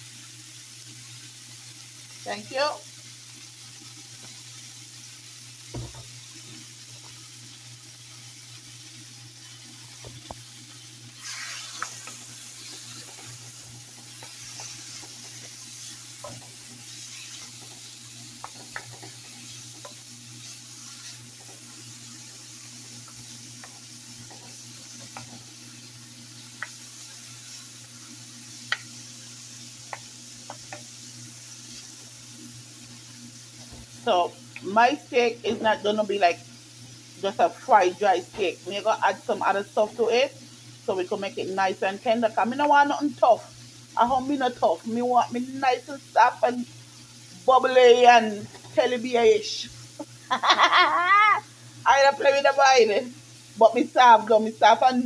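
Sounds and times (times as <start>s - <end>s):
meat sizzling in a frying pan: 0.0s - 55.0s
wooden spoon scraping a pan: 11.2s - 21.9s.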